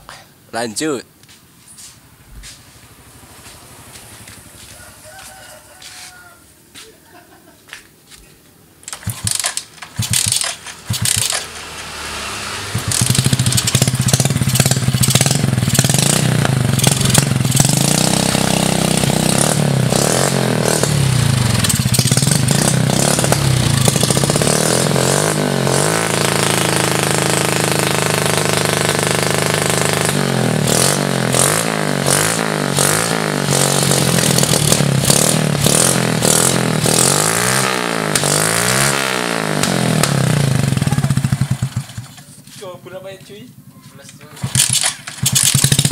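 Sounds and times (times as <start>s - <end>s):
motorcycle engine cranking: 8.8s - 12.0s, 12.7s - 25.0s, 32.2s - 37.3s, 39.5s - 42.4s, 44.1s - 45.9s
motorcycle engine revving: 8.8s - 45.9s.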